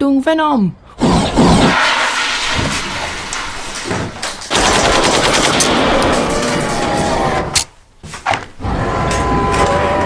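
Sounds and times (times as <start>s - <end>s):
automatic gunfire: 4.5s - 6.5s.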